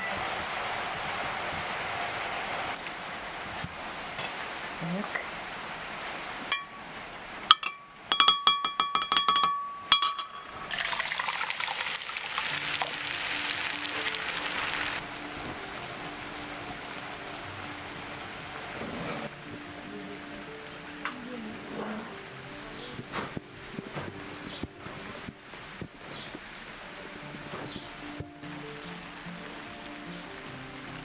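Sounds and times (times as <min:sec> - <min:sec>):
enamel bowls clinking: 0:06.5 - 0:06.9, 0:07.5 - 0:13.2
soft background music: 0:07.5 - 0:31.0
juice pouring and sizzling in pan: 0:09.9 - 0:25.4.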